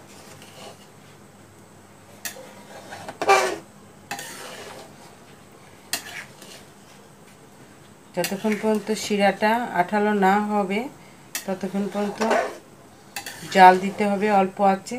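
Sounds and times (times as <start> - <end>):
low steady hum: 0.0 - 14.9
metal spatula scraping pan: 0.1 - 0.9, 2.2 - 4.9, 5.9 - 6.7, 8.2 - 9.1, 11.4 - 14.3.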